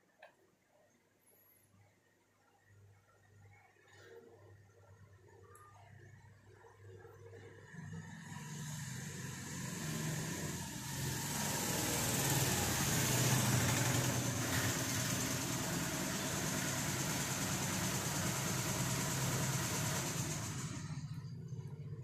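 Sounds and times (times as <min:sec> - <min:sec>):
engine running: 0:07.4 - 0:22.0.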